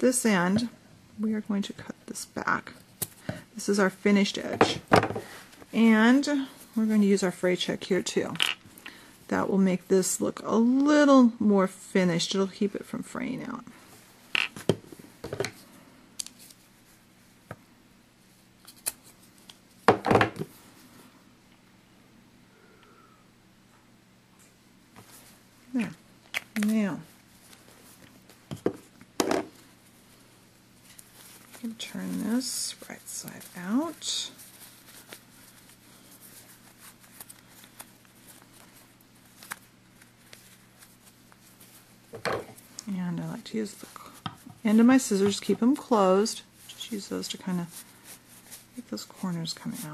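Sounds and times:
fabric rustling between fingers: 0:29.5 - 0:49.9.

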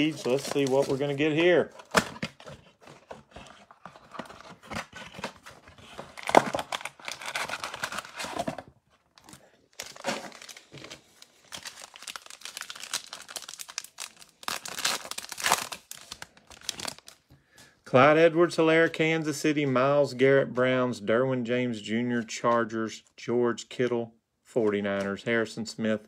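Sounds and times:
foil pack crinkling and tearing: 0:00.0 - 0:01.6, 0:06.2 - 0:08.4, 0:09.2 - 0:17.2.

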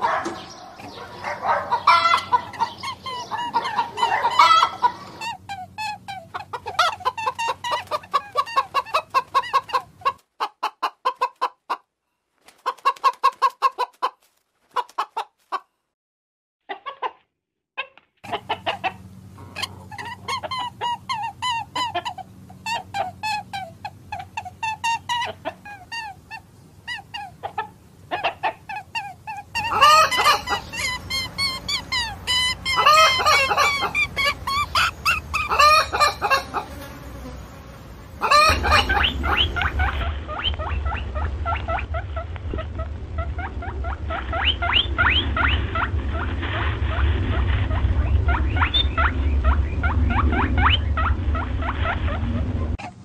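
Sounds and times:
chickens calling: 0:00.0 - 0:15.7, 0:17.8 - 0:53.0
low hum: 0:30.2 - 0:53.0
short rising peeps: 0:38.2 - 0:52.8.

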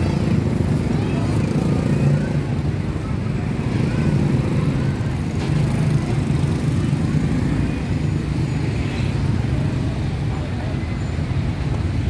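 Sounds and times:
road traffic rumble: 0:00.0 - 0:12.0
faint voices: 0:08.7 - 0:12.0.

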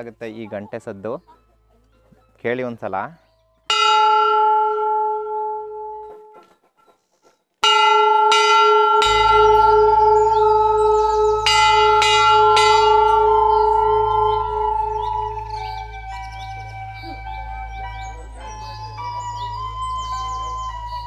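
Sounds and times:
hanging bells clanging: 0:03.7 - 0:06.4, 0:07.6 - 0:21.0
large brass bell ringing: 0:03.7 - 0:06.4, 0:07.6 - 0:21.0
small bells jingling: 0:07.6 - 0:21.0.

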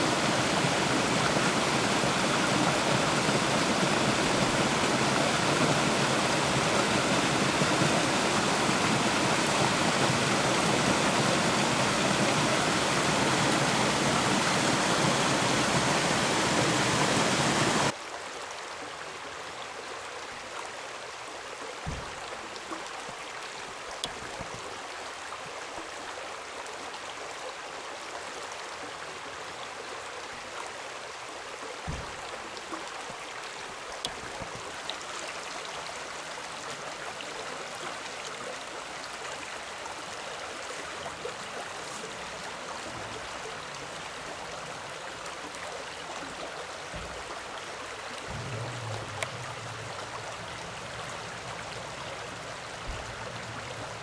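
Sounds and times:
stream running over stones: 0:00.0 - 0:54.0
soft low knocks: 0:21.8 - 0:22.8, 0:24.0 - 0:24.8, 0:31.8 - 0:32.6, 0:48.2 - 0:54.0.

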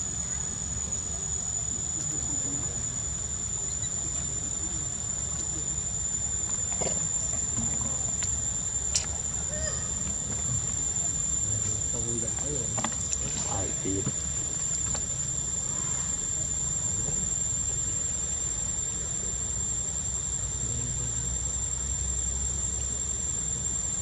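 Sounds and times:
insects droning: 0:00.0 - 0:24.0
low steady rumble: 0:00.0 - 0:24.0
sharp click: 0:08.9 - 0:09.2.

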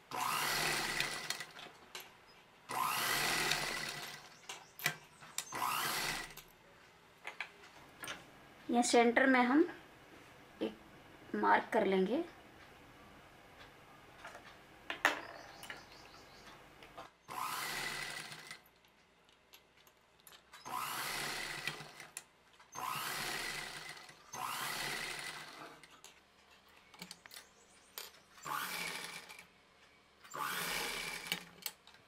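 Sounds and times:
sewing machine stitching fabric: 0:02.7 - 0:04.3, 0:17.3 - 0:18.6, 0:20.7 - 0:22.2, 0:22.8 - 0:25.9, 0:28.4 - 0:29.5, 0:30.3 - 0:31.7.

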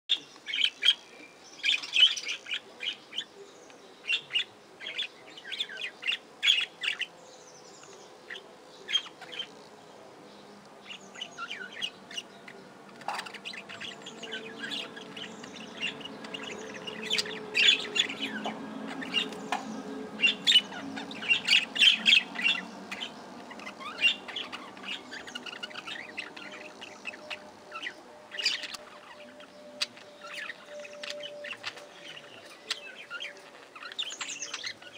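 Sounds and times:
budgerigars chirping and squawking: 0:01.6 - 0:03.3, 0:07.8 - 0:09.6, 0:10.9 - 0:34.9.

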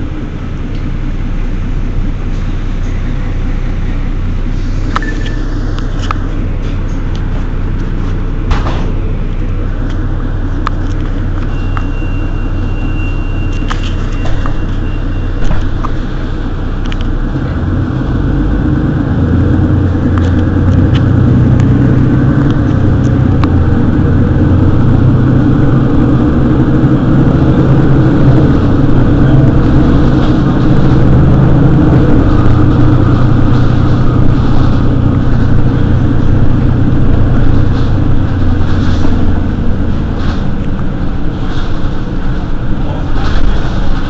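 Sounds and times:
bus engine droning: 0:00.0 - 0:44.0
thin high beep: 0:04.9 - 0:05.6, 0:11.4 - 0:15.4.

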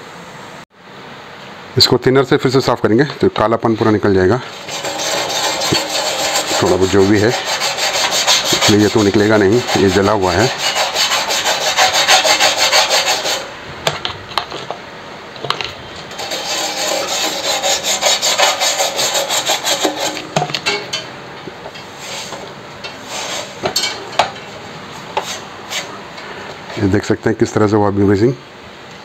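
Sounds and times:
toothbrush scrubbing metal panel: 0:04.4 - 0:13.5, 0:16.1 - 0:21.0, 0:21.9 - 0:23.6.

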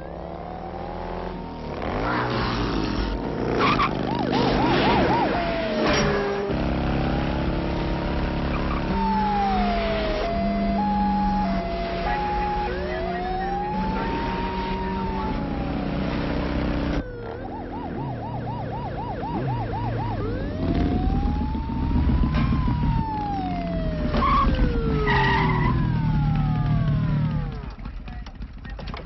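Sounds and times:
police siren: 0:00.0 - 0:02.5, 0:03.4 - 0:27.7
motorcycle engine running: 0:10.4 - 0:24.7, 0:25.8 - 0:29.0.

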